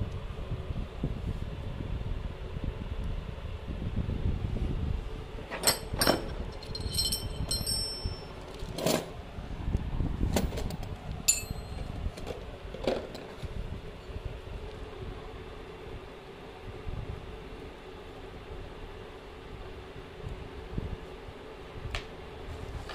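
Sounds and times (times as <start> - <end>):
low handling rumble: 3.6 - 15.3
metal drill bits clinking: 5.6 - 8.5, 11.3 - 11.9.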